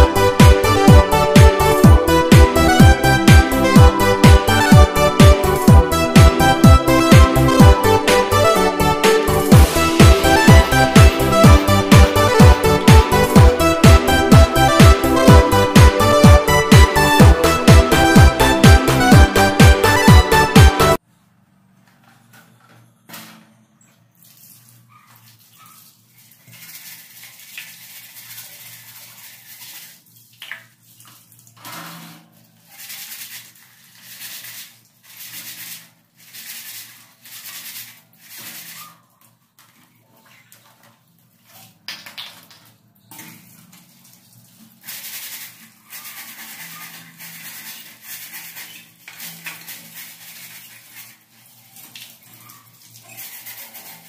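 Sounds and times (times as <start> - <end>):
sponge scrubbing fan guard: 31.6 - 39.0, 44.6 - 54.0.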